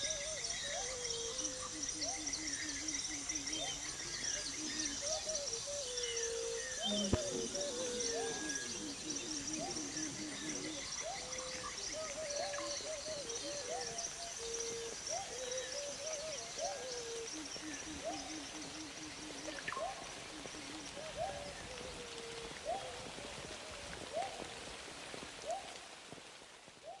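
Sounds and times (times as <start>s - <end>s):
bird hooting: 4.6s - 13.9s.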